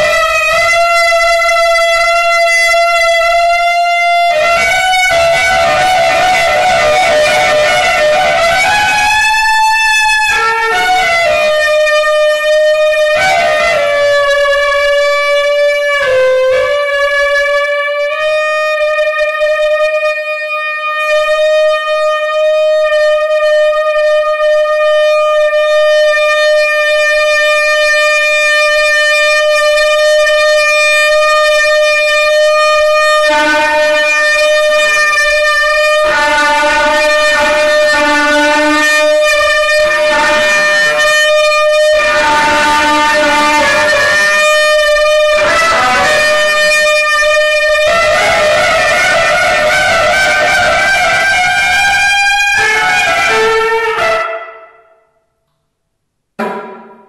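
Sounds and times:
solo saxophone: 35.0s - 46.6s, 47.6s - 54.4s.

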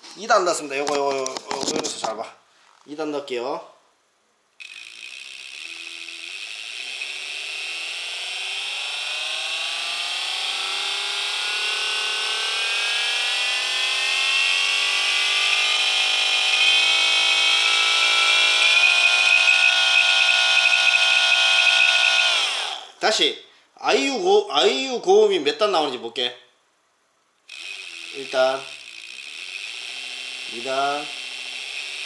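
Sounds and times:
electric motor whine rising: 4.6s - 23.0s, 27.5s - 32.0s.

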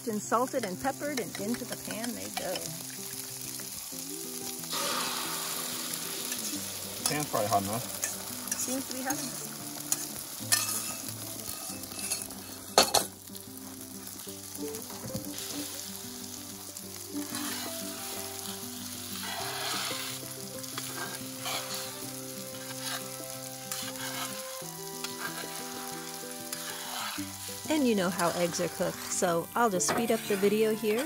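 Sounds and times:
eggs sizzling in skillet: 0.0s - 31.0s
metal spatula scraping pan: 5.9s - 13.1s, 17.2s - 18.0s, 19.1s - 29.1s, 29.9s - 31.0s.

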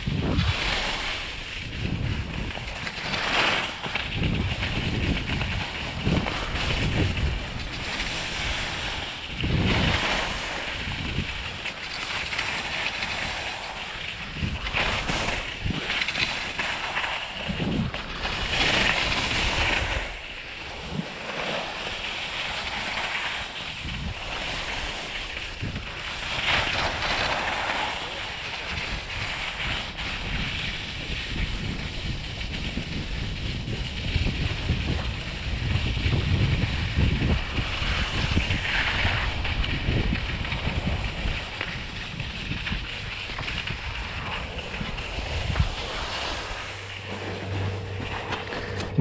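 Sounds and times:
wind rumbling on microphone: 0.0s - 49.0s
skis hissing on snow: 0.2s - 2.3s, 5.6s - 17.6s, 18.3s - 33.1s, 36.7s - 47.0s.

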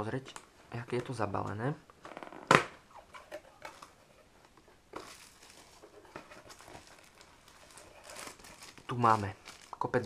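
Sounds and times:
cardboard and plastic rustling: 2.5s - 10.0s.

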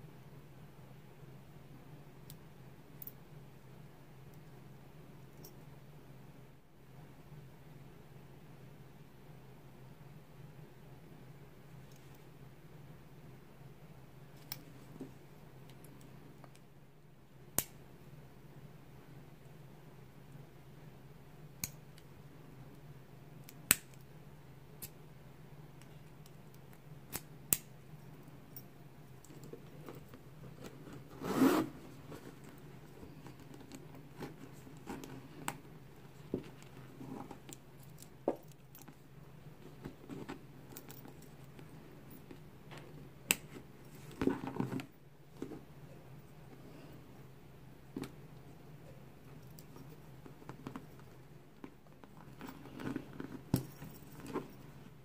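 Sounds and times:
faint steady hum: 0.0s - 55.0s
handbag rubbing and rustling: 29.3s - 38.0s, 39.6s - 41.8s, 51.8s - 55.0s
padlock and keys clinking: 37.5s - 39.0s.

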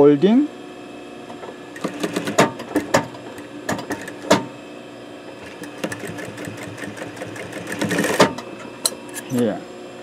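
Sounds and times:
sewing machine stitching: 1.8s - 3.0s, 5.4s - 8.4s.

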